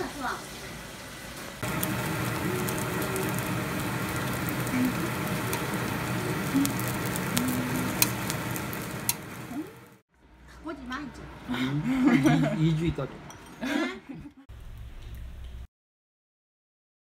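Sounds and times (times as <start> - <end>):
food sizzling in a pan: 0.0 - 10.0.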